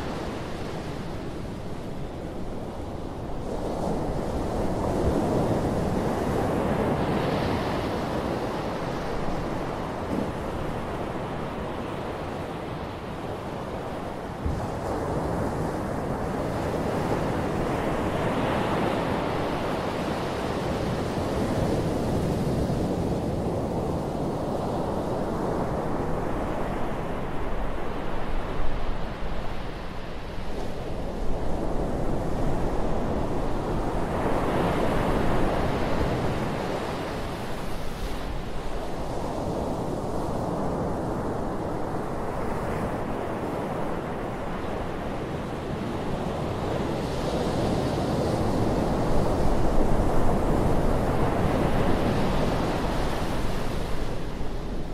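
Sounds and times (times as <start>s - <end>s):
gentle surf on sandy beach: 0.0s - 54.9s.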